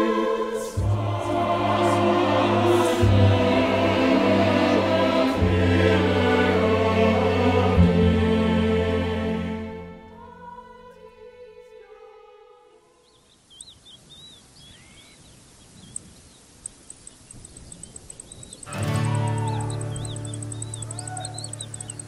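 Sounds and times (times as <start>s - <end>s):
choral vocal harmony: 0.0s - 13.2s, 18.7s - 22.0s
bird chirps: 13.0s - 22.0s
fast high-pitched ticking: 15.9s - 22.0s.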